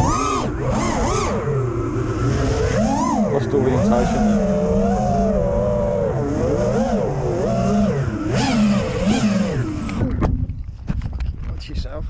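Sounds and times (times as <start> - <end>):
drone propellers whining: 0.0 - 10.7.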